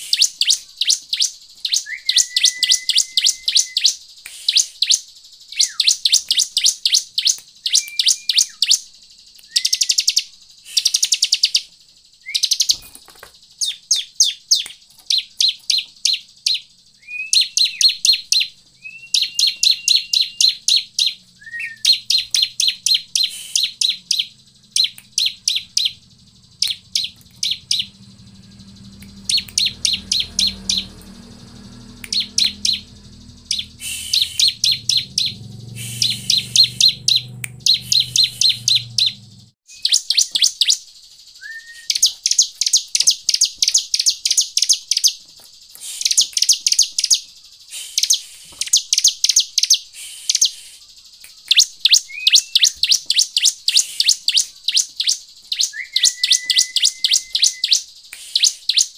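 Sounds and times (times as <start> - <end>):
bird chirping rapidly: 0.0 - 58.9
faint low hum: 5.2 - 39.6.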